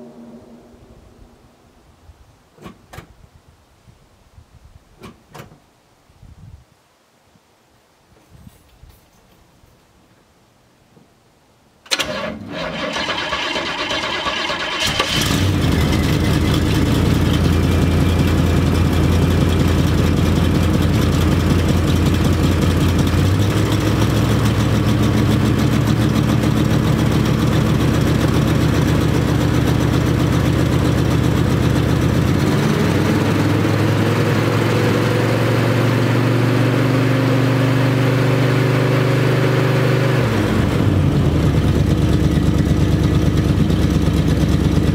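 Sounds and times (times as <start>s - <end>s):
engine cranking on starter: 11.9s - 19.9s
engine running at fast idle: 12.6s - 35.2s, 40.2s - 44.9s.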